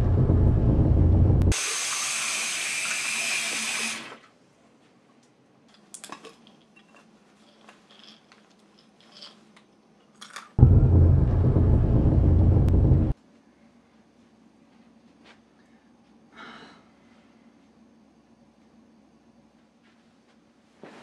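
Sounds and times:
deep low rumble: 0.0s - 1.5s, 10.6s - 13.2s
tap running water: 1.5s - 4.2s
faint clicks and rustles: 4.8s - 10.6s.

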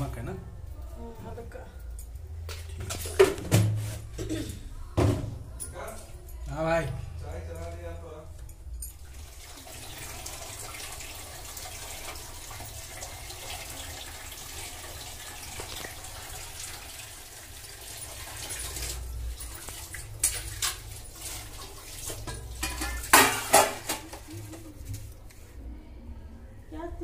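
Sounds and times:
water pouring into a steel pot: 9.0s - 24.3s.

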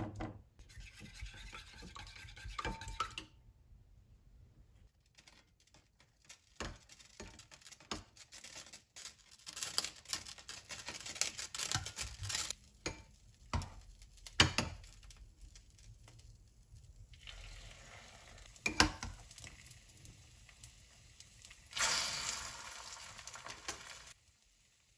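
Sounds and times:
food sizzling in oil: 17.1s - 24.9s.

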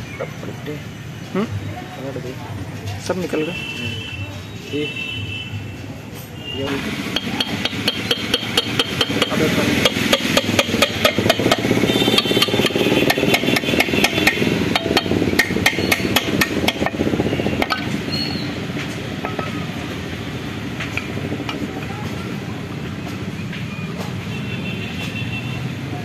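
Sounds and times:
steady background noise: 0.0s - 26.0s
hammer tapping on metal: 7.1s - 17.0s, 18.8s - 19.7s.

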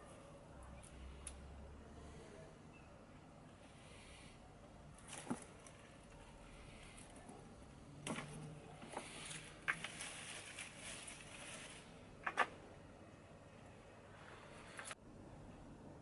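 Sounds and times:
potting compost rustling and scraping: 5.0s - 12.2s.

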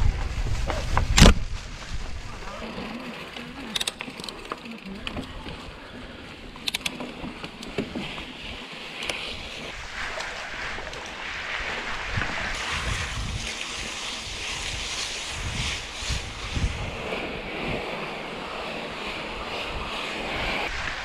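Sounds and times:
wind buffeting microphone: 0.0s - 2.7s, 9.3s - 21.0s
bike rattling: 0.0s - 21.0s.

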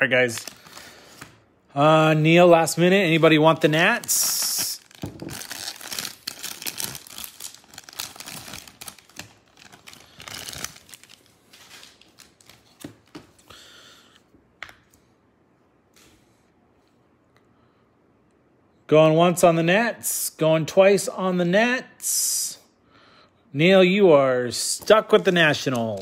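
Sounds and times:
packaging crinkling and rustling: 3.1s - 13.4s, 24.8s - 26.0s
plastic wrapper ripping: 3.9s - 12.8s, 25.1s - 26.0s.

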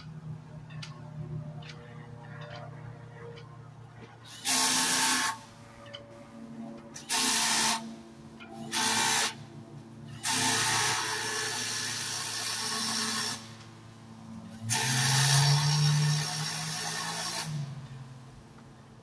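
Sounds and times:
power tool bursts: 4.3s - 5.5s, 7.0s - 7.9s, 8.6s - 9.4s, 10.2s - 13.6s, 14.7s - 17.7s.

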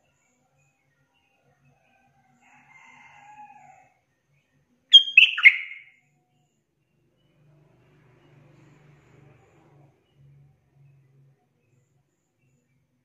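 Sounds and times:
bird bubbly song burst: 4.9s - 5.8s
faint drawn-out bird call: 4.9s - 5.9s.

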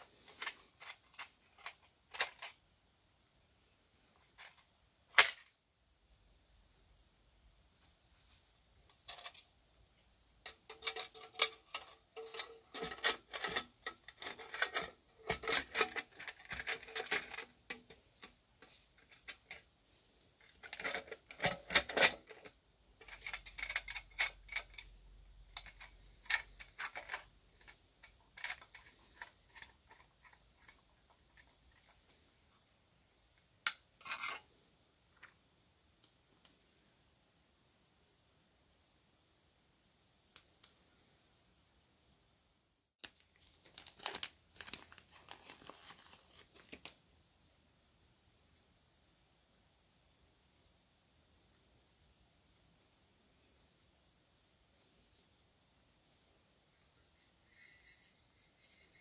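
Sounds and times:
metal parts clinking: 0.2s - 2.6s, 10.5s - 18.0s, 20.4s - 25.0s, 25.6s - 30.8s.

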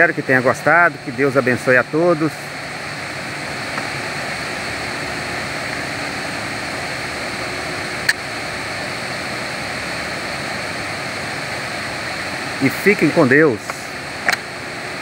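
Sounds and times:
waterfall roaring: 0.0s - 15.0s
sharp click: 8.0s - 8.2s, 13.6s - 14.5s.

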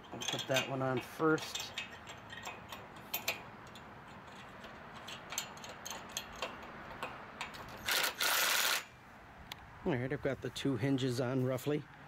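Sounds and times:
light clicks and taps of metal clamp: 0.1s - 7.8s.

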